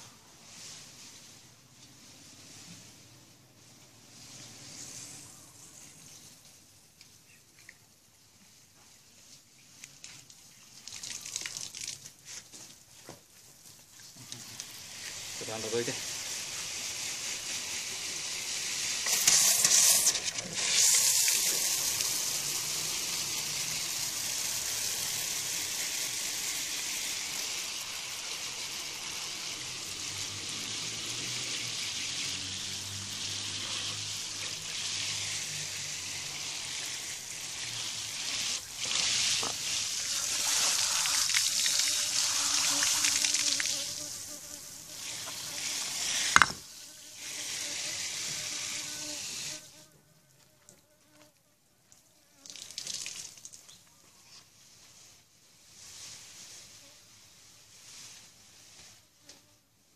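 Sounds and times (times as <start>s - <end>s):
water spraying from a hose: 0.0s - 6.4s, 9.9s - 12.8s, 13.9s - 49.8s, 52.4s - 53.8s
water splashing in pots: 9.9s - 12.9s, 13.8s - 46.7s, 52.4s - 53.9s.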